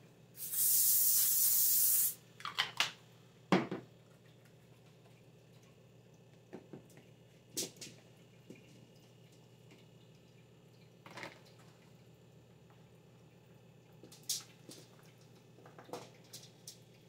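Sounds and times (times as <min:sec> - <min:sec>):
aerosol spray hissing: 0:00.4 - 0:02.2
knock: 0:03.5 - 0:03.8.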